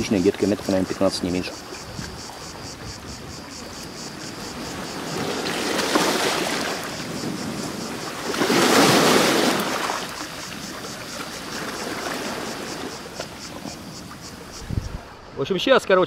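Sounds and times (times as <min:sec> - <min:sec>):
waves washing onto pebble beach: 0:04.3 - 0:14.0.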